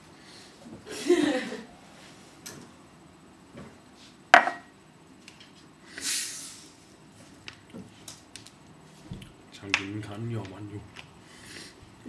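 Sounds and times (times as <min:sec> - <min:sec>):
gas hissing from bottle: 0:05.9 - 0:06.7.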